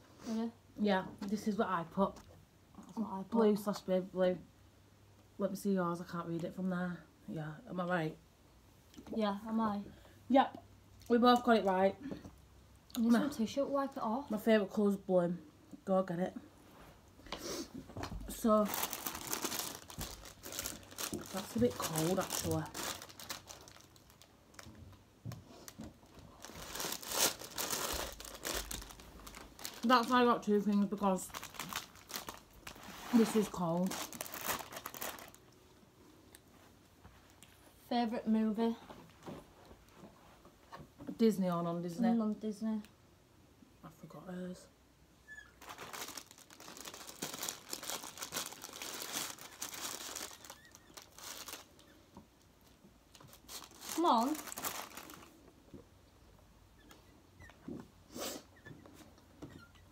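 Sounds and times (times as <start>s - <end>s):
paper bag rustling: 18.3s - 24.7s, 25.6s - 35.4s, 45.6s - 51.8s, 53.3s - 55.4s
food wrapper crinkling: 18.4s - 24.8s, 25.6s - 35.6s, 45.5s - 52.0s, 53.1s - 55.4s.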